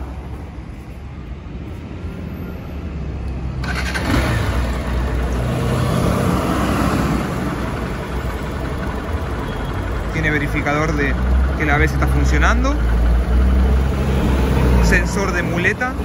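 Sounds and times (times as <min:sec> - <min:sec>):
motorcycle engine idling: 0:07.2 - 0:13.3.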